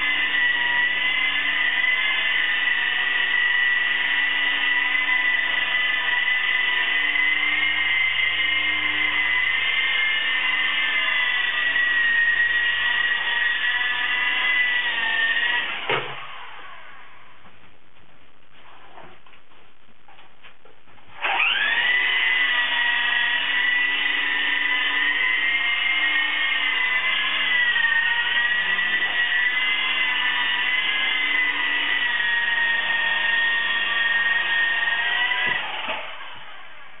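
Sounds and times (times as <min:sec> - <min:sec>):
toy helicopter rotors whining: 0:21.2 - 0:36.9.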